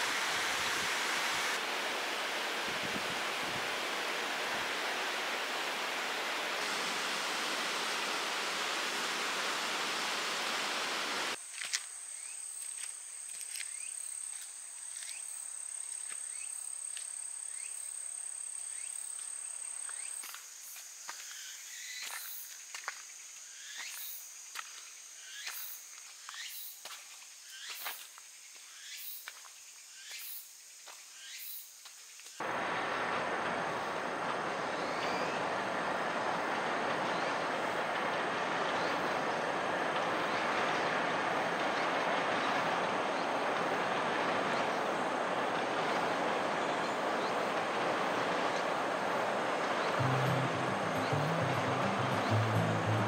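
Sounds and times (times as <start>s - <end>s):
steady rushing hiss: 0.0s - 12.1s, 32.0s - 53.0s
insects trilling: 3.9s - 53.0s
footsteps crunching on stone trail: 11.4s - 11.9s, 12.6s - 15.2s, 24.5s - 29.6s.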